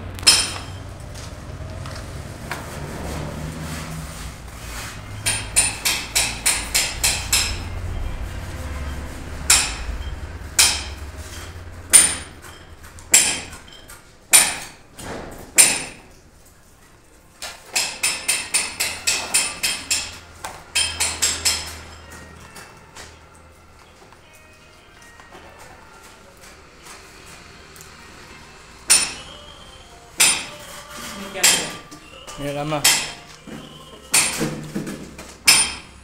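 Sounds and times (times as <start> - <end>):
hammer blows on metal: 28.9 - 29.5, 30.2 - 31.9.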